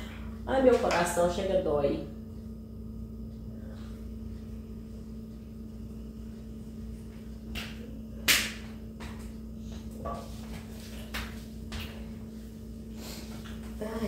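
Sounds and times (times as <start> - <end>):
low hum: 0.0 - 14.0.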